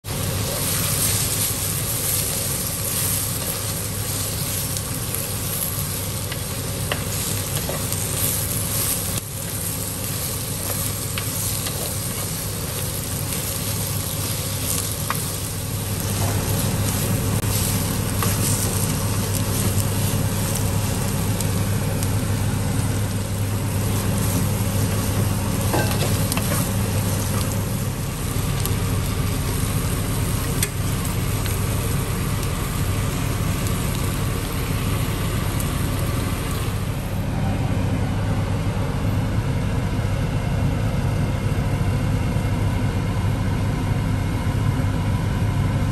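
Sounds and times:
onions sizzling in oil: 0:00.0 - 0:37.3
steady low hum: 0:00.1 - 0:45.9
spatula stirring: 0:05.8 - 0:21.2.

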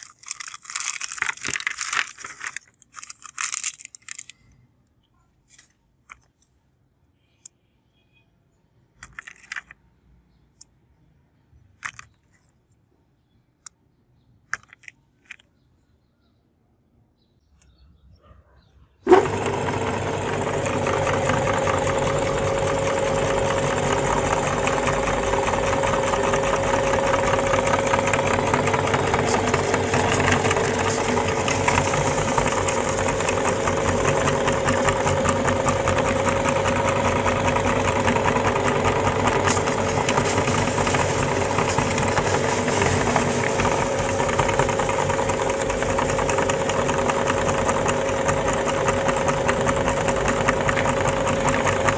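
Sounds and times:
meat grinder humming: 0:19.1 - 0:51.9.

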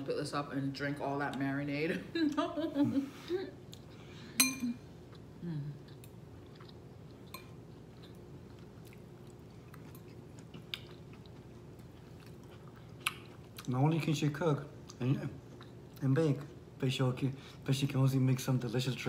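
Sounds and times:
chewing with mouth clicks: 0:03.6 - 0:04.1, 0:05.0 - 0:13.8, 0:14.8 - 0:16.1.

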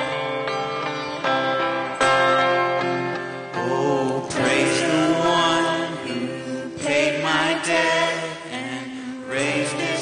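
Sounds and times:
acoustic guitar strumming: 0:00.0 - 0:07.1.

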